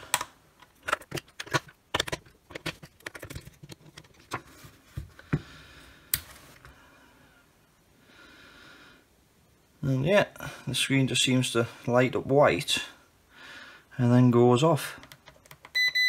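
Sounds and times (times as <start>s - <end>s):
batteries clicking into compartment: 0.1s - 4.1s.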